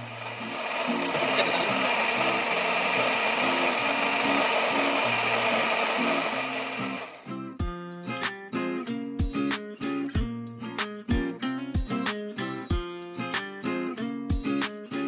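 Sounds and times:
electric blender whirring: 0:00.0 - 0:07.3
acoustic guitar music: 0:00.0 - 0:15.0.

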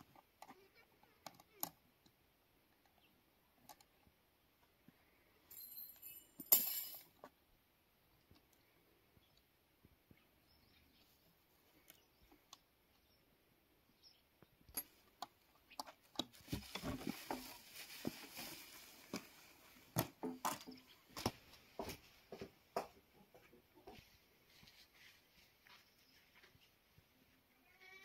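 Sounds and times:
plastic sheet rustling: 0:16.3 - 0:19.9.

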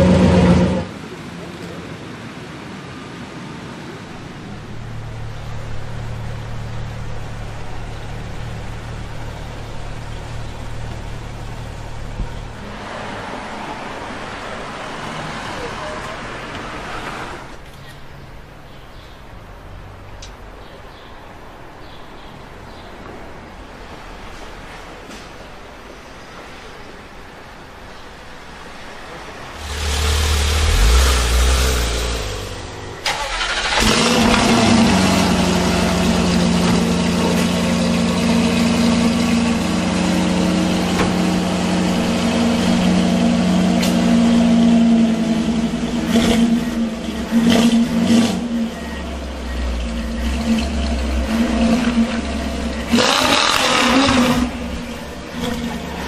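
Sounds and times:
car engine idling: 0:04.3 - 0:16.7, 0:29.2 - 0:56.0
sports car engine revving: 0:29.6 - 0:56.0.

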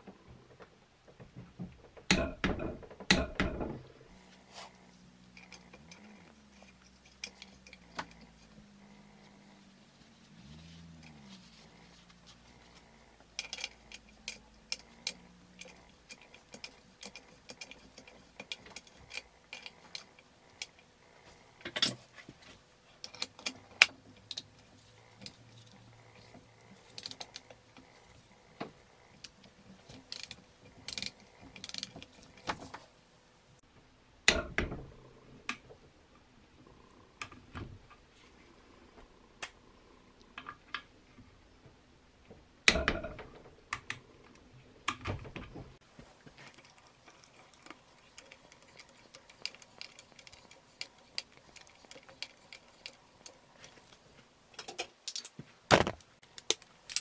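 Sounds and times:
ratcheting wrench clicking: 0:13.3 - 0:20.8, 0:29.2 - 0:32.5.

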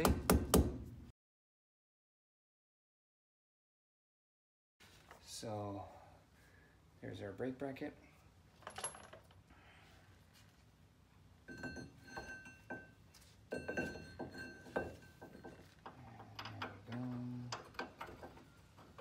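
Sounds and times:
metal clinking and ringing: 0:08.6 - 0:09.2, 0:11.4 - 0:18.7.

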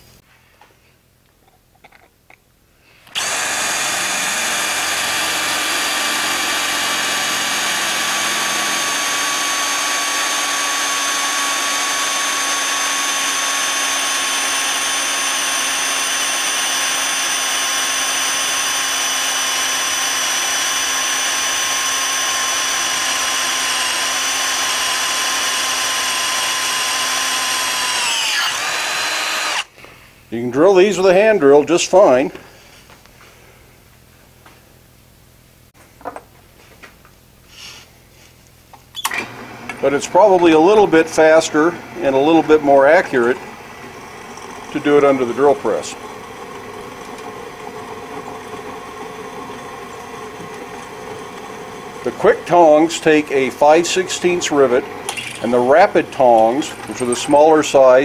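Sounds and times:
cordless drill boring steel: 0:03.0 - 0:29.7, 0:39.0 - 0:58.0.

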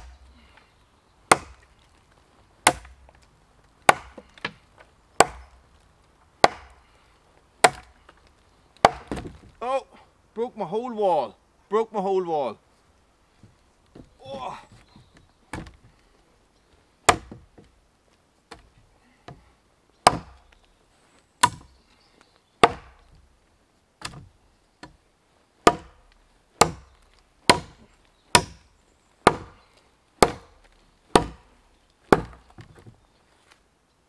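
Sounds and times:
blade chopping into wood: 0:01.3 - 0:01.6, 0:02.7 - 0:03.0, 0:03.8 - 0:04.6, 0:05.2 - 0:05.5, 0:06.4 - 0:06.8, 0:08.8 - 0:09.4, 0:21.4 - 0:21.7, 0:22.6 - 0:23.0, 0:25.6 - 0:26.0, 0:26.6 - 0:26.9, 0:27.5 - 0:27.8, 0:28.4 - 0:28.6, 0:29.3 - 0:29.6, 0:30.2 - 0:31.4, 0:32.1 - 0:32.4.

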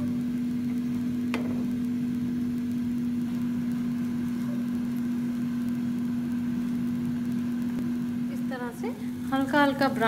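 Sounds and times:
low mechanical hum: 0:00.0 - 0:10.0.

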